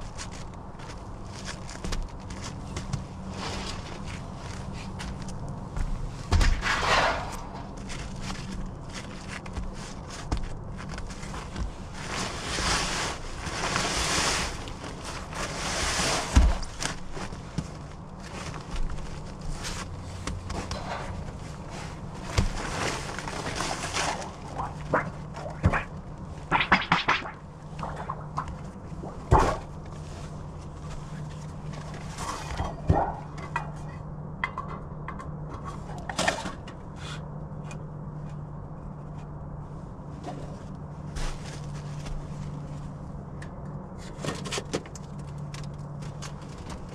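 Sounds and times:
steady low hum: 0.0 - 46.9
rushing noise: 6.5 - 8.2.

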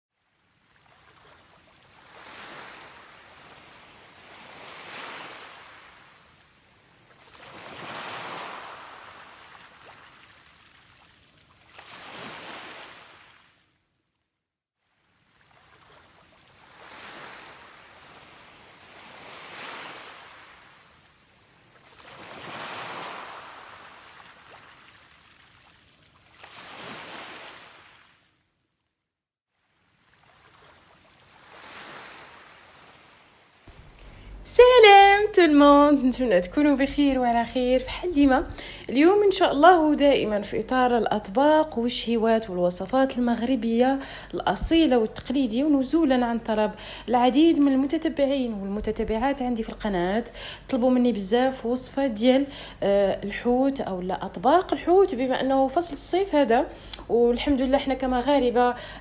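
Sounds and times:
ocean surf washing: 2.0 - 6.3, 7.3 - 10.4, 11.8 - 13.4, 15.8 - 21.2, 21.9 - 25.1, 26.4 - 28.1, 30.1 - 41.0.

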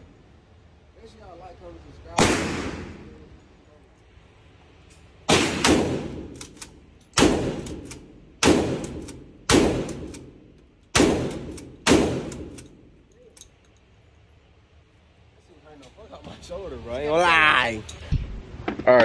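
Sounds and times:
gunshots with long echo: 2.2 - 3.1, 5.3 - 6.4, 7.2 - 12.9.

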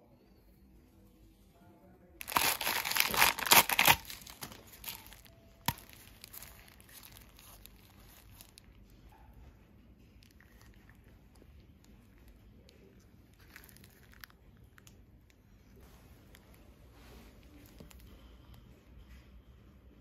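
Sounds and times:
thin plastic crinkling: 2.2 - 8.9, 10.2 - 15.0.

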